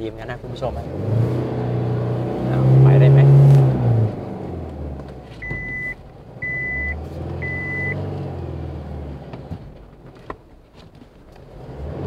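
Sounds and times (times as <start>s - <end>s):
diesel engine revving: 0.0s - 9.9s, 11.5s - 12.0s
warning chime beeps: 5.4s - 8.0s.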